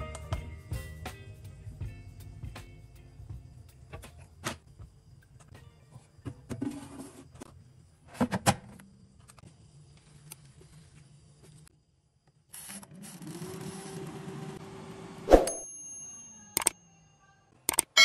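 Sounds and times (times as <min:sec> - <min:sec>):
air fryer fan whirring: 0:12.9 - 0:15.3.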